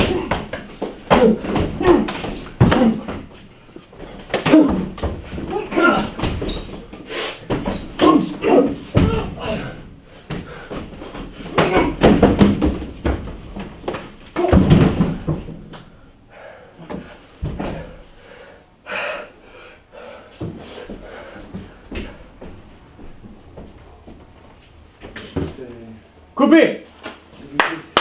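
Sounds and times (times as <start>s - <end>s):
bodies knocking against furniture: 0.0s - 15.9s, 16.8s - 18.0s
fistfight thuds and slams: 7.4s - 9.6s, 11.5s - 15.7s.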